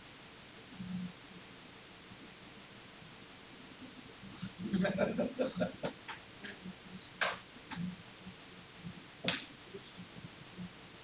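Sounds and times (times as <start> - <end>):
low steady hiss: 0.0 - 11.0.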